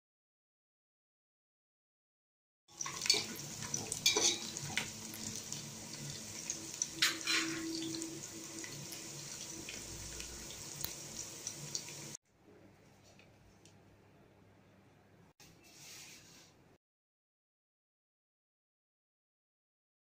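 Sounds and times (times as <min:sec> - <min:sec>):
onions sizzling in hot oil: 0:02.7 - 0:12.2.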